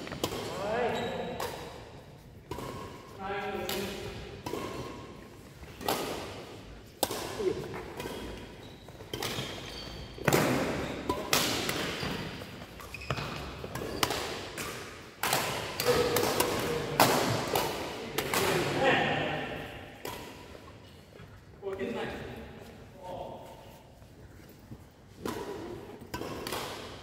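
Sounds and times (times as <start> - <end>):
shoes squeaking on court floor: 0.0 - 1.6, 7.5 - 14.3
rackets hitting shuttlecock: 0.0 - 20.8, 25.1 - 27.0.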